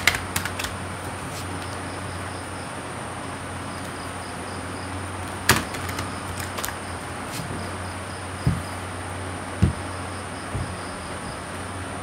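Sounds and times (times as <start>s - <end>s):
cards snapping: 0.0s - 1.5s, 5.5s - 7.5s
steady background hiss: 0.0s - 12.0s
deck thumping on cloth: 8.4s - 8.9s, 9.6s - 11.5s.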